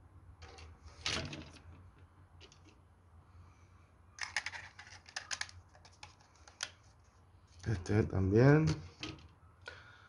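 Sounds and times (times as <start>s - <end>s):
plastic model parts clicking: 4.2s - 6.8s.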